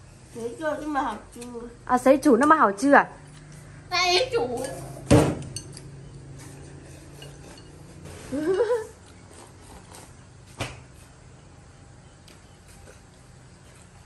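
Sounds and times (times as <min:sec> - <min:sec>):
chopsticks against porcelain bowls: 0:04.6 - 0:09.9
person making rising mm sound: 0:08.2 - 0:09.0.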